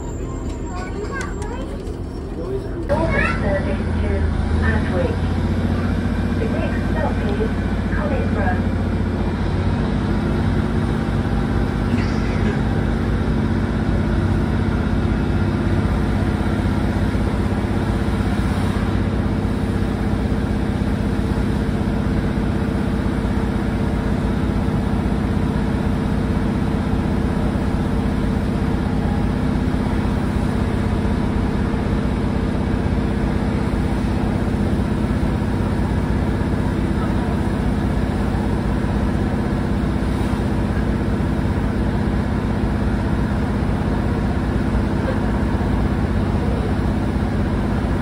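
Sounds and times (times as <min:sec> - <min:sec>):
diesel engine droning: 0:00.0 - 0:48.0
wheel and rail running noise: 0:00.0 - 0:48.0.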